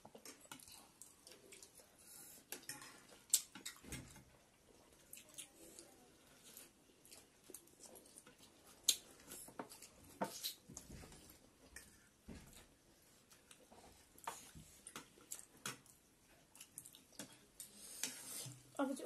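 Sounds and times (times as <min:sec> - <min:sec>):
slurping and chewing: 0:00.0 - 0:03.8.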